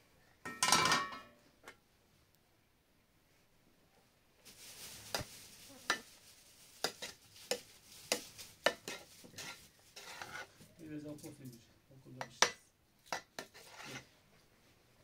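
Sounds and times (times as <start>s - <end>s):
spoon scraping in pot: 5.1s - 6.1s, 6.8s - 10.7s, 13.1s - 14.1s.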